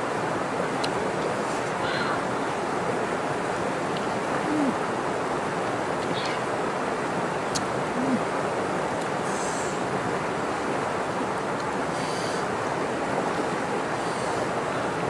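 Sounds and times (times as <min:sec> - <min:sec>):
river water flowing over rocks: 0:00.0 - 0:15.0
faint high hisses: 0:09.2 - 0:09.8, 0:11.9 - 0:12.5.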